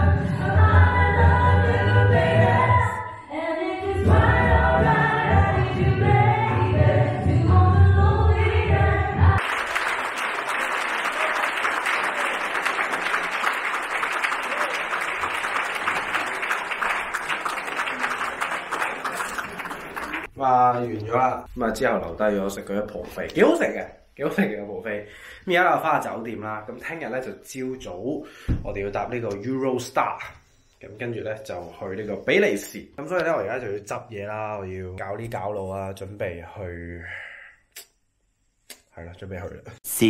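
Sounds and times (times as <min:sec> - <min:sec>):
audience applauding: 0:09.4 - 0:20.3.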